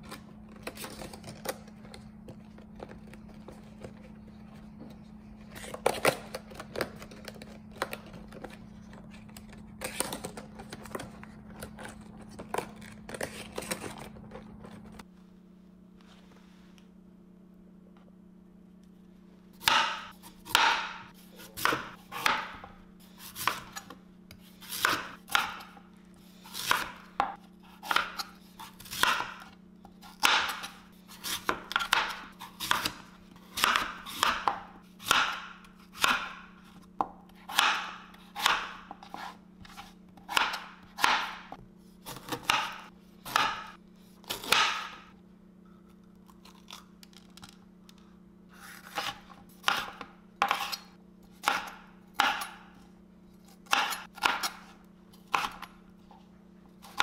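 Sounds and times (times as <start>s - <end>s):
knife chopping on cutting board: 19.6s - 23.9s, 24.6s - 25.8s, 26.5s - 29.5s, 30.1s - 33.0s, 33.6s - 45.1s, 48.6s - 50.8s, 51.4s - 52.7s, 53.6s - 54.7s, 55.3s - 55.7s.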